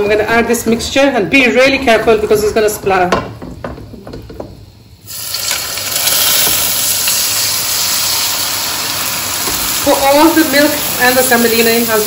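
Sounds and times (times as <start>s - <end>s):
syrup sizzling hiss: 5.0s - 12.0s.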